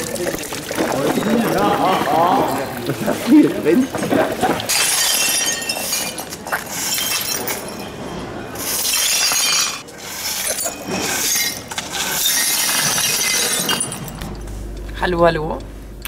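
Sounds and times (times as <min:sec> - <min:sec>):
glass clinking: 0:00.0 - 0:14.5
broom sweeping broken glass: 0:03.8 - 0:14.4.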